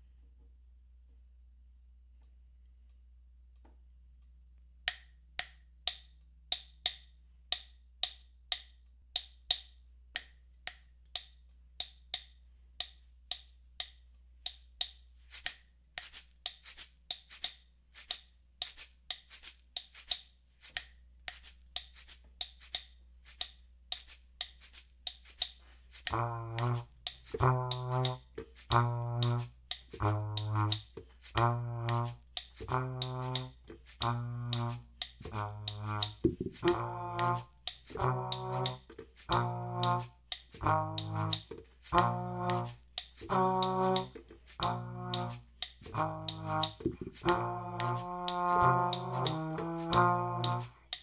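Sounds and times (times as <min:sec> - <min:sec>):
sharp wooden stick clicks: 0:04.9 - 0:51.0
egg shaker: 0:12.9 - 0:51.0
valve trombone low notes: 0:26.1 - 0:50.8.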